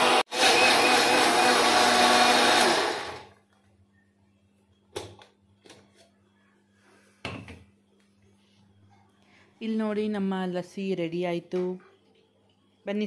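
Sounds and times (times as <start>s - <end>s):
kitchen blender running: 0.0s - 3.4s.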